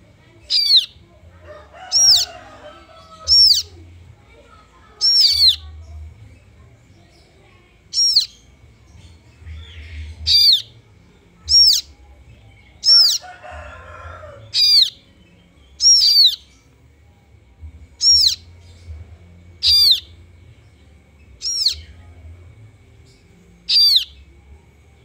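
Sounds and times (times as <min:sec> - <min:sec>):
nestling birds shrill calls: 0:00.4 - 0:01.0, 0:01.6 - 0:03.8, 0:05.0 - 0:05.7, 0:07.9 - 0:08.6, 0:09.4 - 0:10.7, 0:11.5 - 0:12.0, 0:12.8 - 0:15.1, 0:15.7 - 0:16.6, 0:18.0 - 0:18.8, 0:19.6 - 0:20.2, 0:21.4 - 0:22.0, 0:23.6 - 0:24.3.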